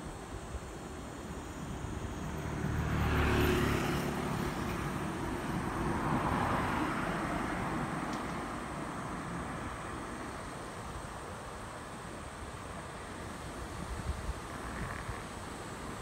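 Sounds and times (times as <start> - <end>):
steady traffic noise: 0.0 - 16.0
vehicle passing close by: 1.6 - 10.3.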